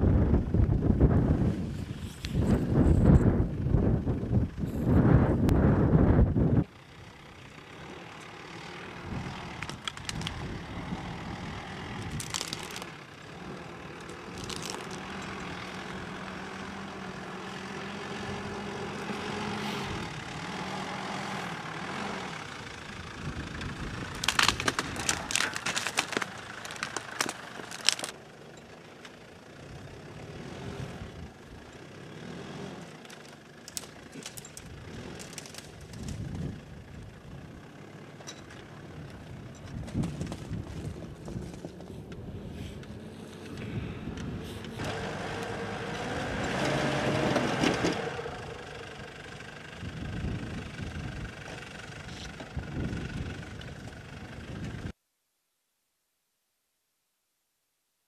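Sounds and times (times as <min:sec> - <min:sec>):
van engine running: 0:00.0 - 0:55.0
stones crunching under tyres: 0:08.2 - 0:16.8, 0:23.4 - 0:29.2, 0:33.0 - 0:36.7, 0:38.2 - 0:43.6.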